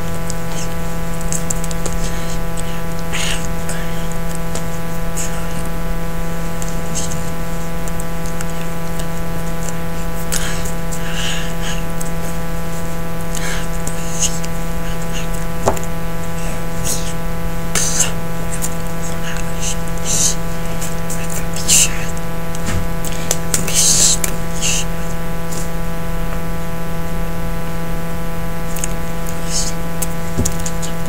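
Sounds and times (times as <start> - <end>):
electrical hum and buzz: 0.0 - 31.0
breath or mouth sounds: 0.3 - 25.8.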